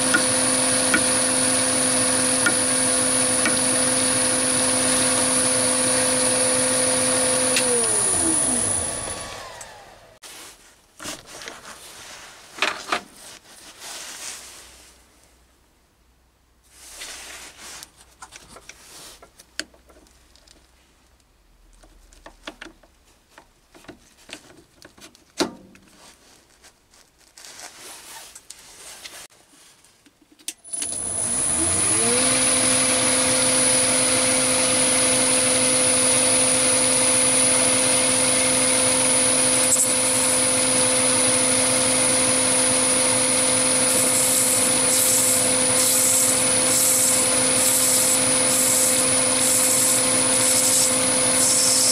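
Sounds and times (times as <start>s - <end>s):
lathe motor running with whine: 0.0s - 10.2s, 30.8s - 51.9s.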